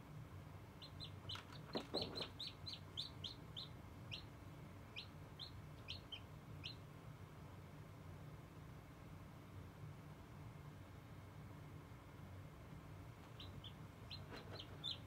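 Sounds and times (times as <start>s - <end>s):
chick peeping: 0.8s - 6.8s, 13.2s - 15.0s.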